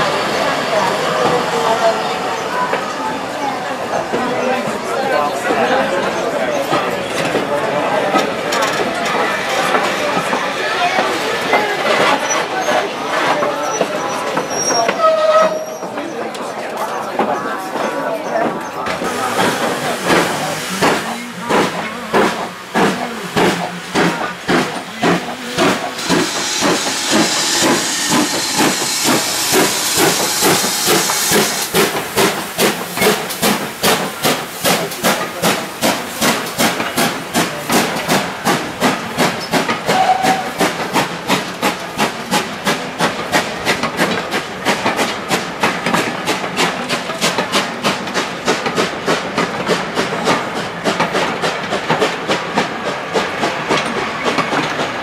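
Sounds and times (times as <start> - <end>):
steam locomotive exhaust beats: 18.8 - 55.0
loud hiss of steam: 18.9 - 48.9.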